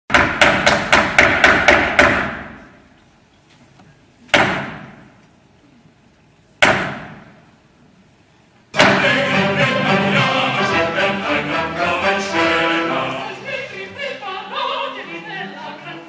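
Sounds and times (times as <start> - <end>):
heavy knocks on wooden stage floor: 0.1 - 2.6.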